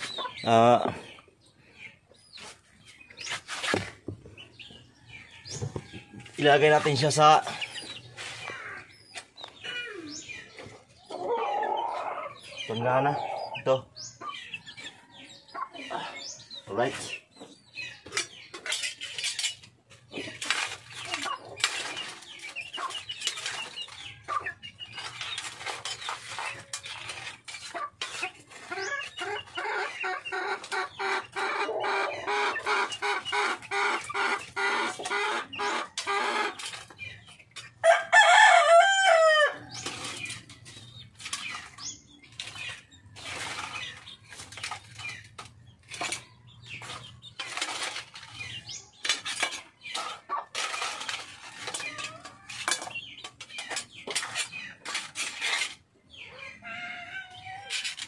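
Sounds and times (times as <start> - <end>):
chickens clucking: 0.0 - 58.0
rooster crowing: 37.8 - 39.6.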